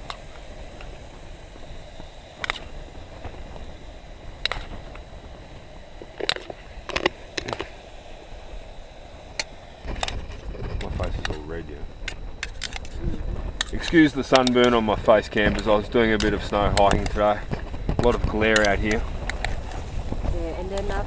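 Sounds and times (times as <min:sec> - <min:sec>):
steady low rush: 0:00.0 - 0:21.0.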